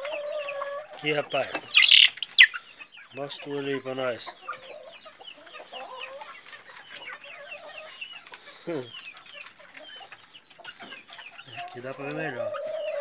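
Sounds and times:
chicks peeping: 0:00.0 - 0:13.0
hens clucking: 0:00.0 - 0:13.0
deeper falling bird call: 0:01.5 - 0:02.6.

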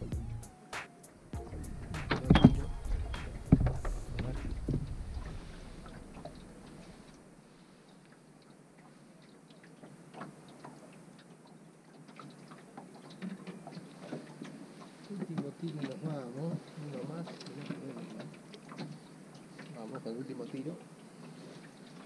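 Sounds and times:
low rumble with clicks: 0:01.4 - 0:07.2.

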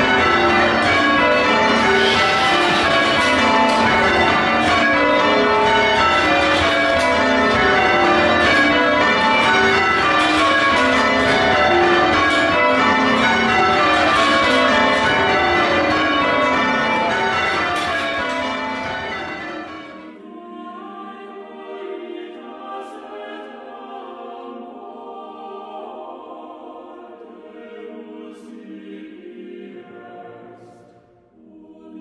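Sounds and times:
church bells pealing: 0:00.0 - 0:20.2.

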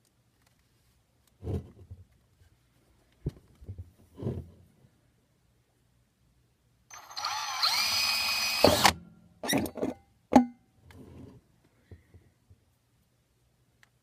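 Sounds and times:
cordless drill whining: 0:06.9 - 0:09.0.

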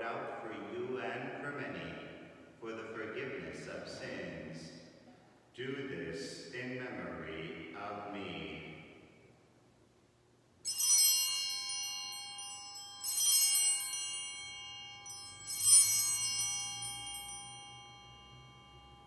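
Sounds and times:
small bells ringing: 0:10.6 - 0:19.0.

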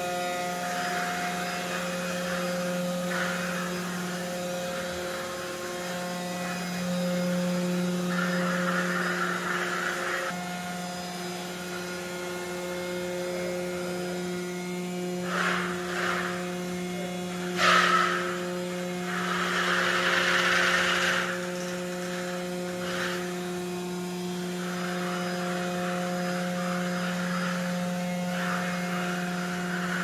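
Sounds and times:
electric motors humming: 0:00.0 - 0:30.0
hissing whine: 0:00.0 - 0:30.0
brief loud rasp: 0:02.2 - 0:04.3, 0:15.2 - 0:16.6, 0:17.4 - 0:18.5.

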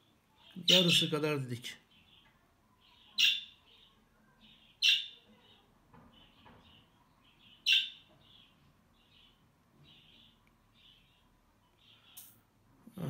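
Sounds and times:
budgerigars chirping: 0:00.6 - 0:01.2, 0:02.9 - 0:03.9, 0:04.5 - 0:05.2, 0:06.3 - 0:12.2.

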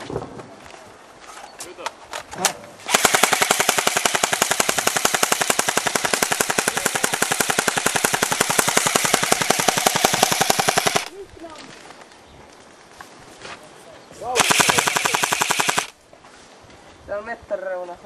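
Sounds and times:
airsoft rifle full-auto burst: 0:02.9 - 0:11.1, 0:14.4 - 0:16.0.

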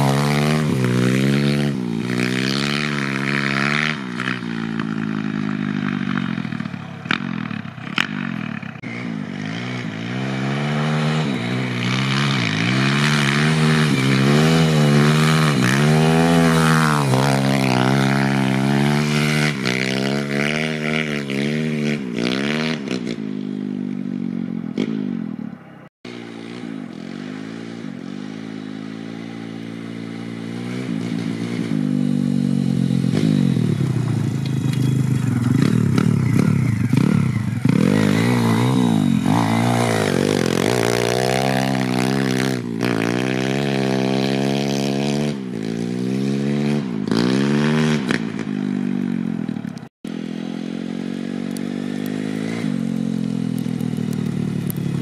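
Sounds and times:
pit bike engine revving: 0:00.0 - 0:55.0
rear wheel spinning in snow: 0:31.8 - 0:44.4, 0:48.9 - 0:55.0.

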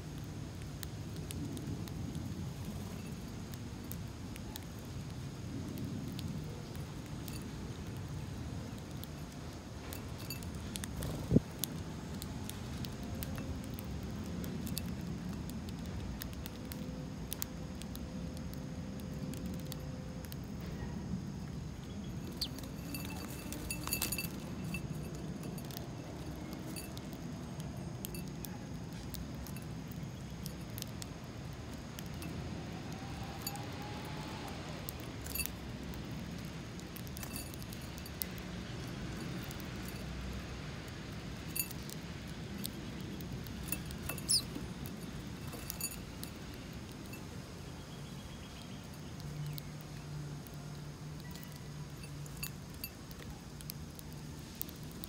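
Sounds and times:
birds fluttering: 0:21.5 - 0:28.2, 0:41.5 - 0:47.3
beaks clicking on a ceramic bowl: 0:22.0 - 0:27.2, 0:42.6 - 0:47.2.

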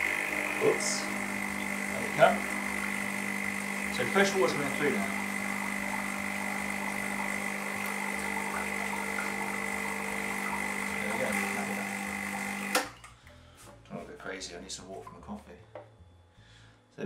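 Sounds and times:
espresso machine pump buzzing: 0:00.0 - 0:13.0.

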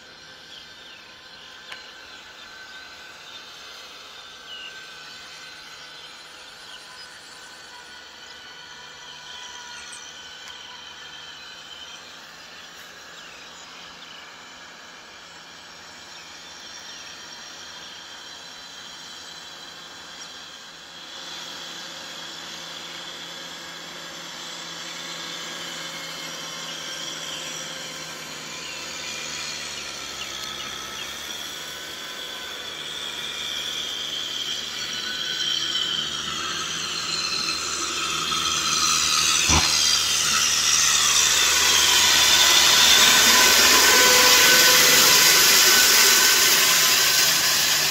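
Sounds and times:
tractor diesel engine running: 0:00.0 - 0:47.9
high whine: 0:21.8 - 0:47.9.

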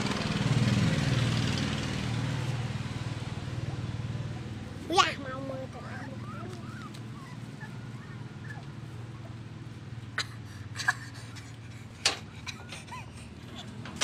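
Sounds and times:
puppy whimpering: 0:05.0 - 0:09.4.

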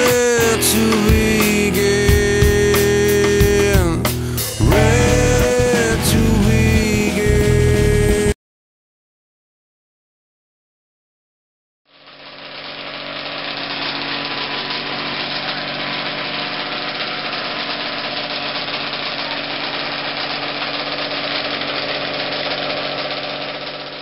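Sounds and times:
two-stroke engine fast idle: 0:00.0 - 0:07.4, 0:12.0 - 0:24.0.

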